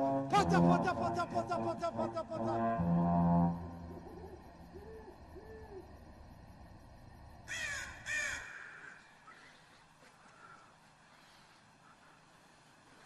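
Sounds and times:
owl hoots: 4.0s - 6.0s
crow cawing: 7.5s - 10.7s.

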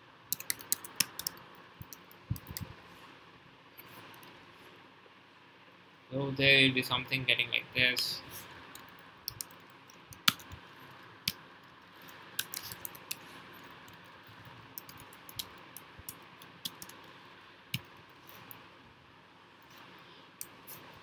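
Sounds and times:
steady hiss: 0.0s - 21.0s
computer keyboard typing: 0.3s - 2.6s, 8.8s - 10.6s, 12.4s - 17.1s.

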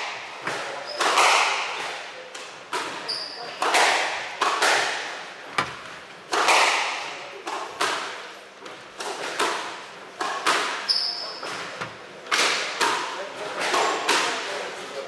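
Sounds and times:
squash ball cracking off rackets: 0.4s - 8.2s, 8.9s - 14.5s
shoe squeaking on wooden floor: 3.0s - 3.6s, 10.8s - 12.0s.

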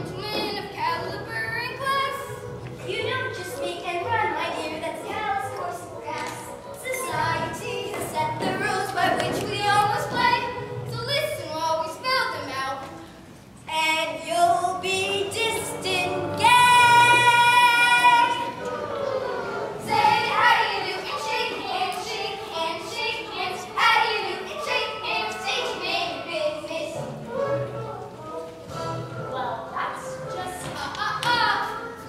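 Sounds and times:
children singing: 14.6s - 28.1s.

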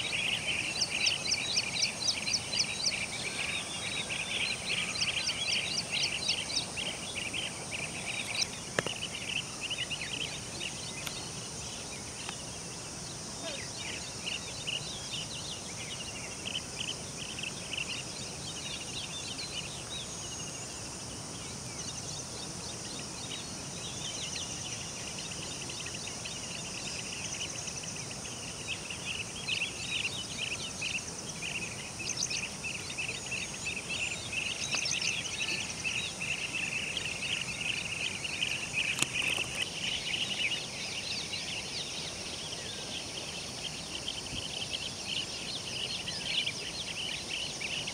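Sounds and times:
birds calling in rolling trills: 0.0s - 47.9s
high insect hiss: 0.0s - 47.9s.

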